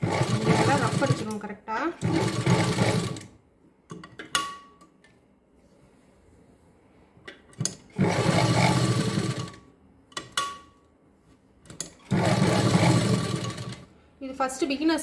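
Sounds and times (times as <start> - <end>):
sewing machine stitching: 0.0 - 1.4, 2.0 - 3.3, 7.7 - 9.6, 11.9 - 13.9.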